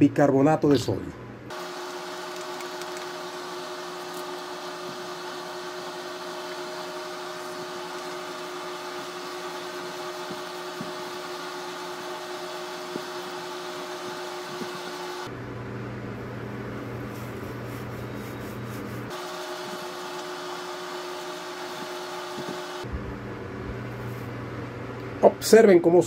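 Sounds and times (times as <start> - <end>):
small electric motor humming: 1.5 - 15.3, 19.1 - 22.9.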